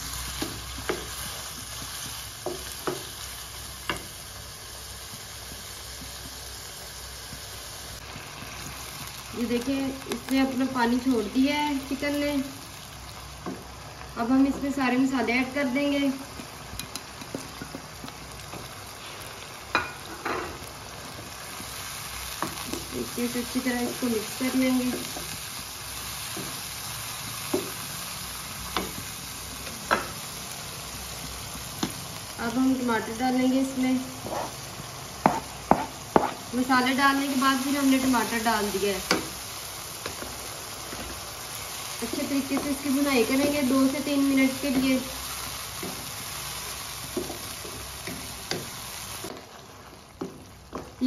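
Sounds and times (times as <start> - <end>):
food sizzling in a wok: 0.0 - 51.0
wooden spatula scraping: 34.1 - 34.6
spatula knocking against pan: 35.2 - 36.4.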